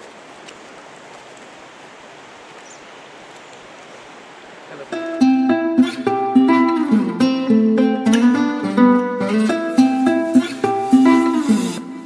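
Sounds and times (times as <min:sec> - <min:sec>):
river water rushing: 0:00.0 - 0:12.0
plucked acoustic guitar music: 0:04.9 - 0:12.0.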